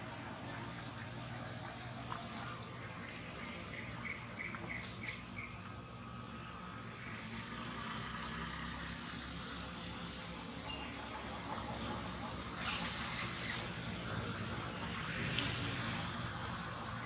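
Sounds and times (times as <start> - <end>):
insects buzzing: 0.0 - 17.0.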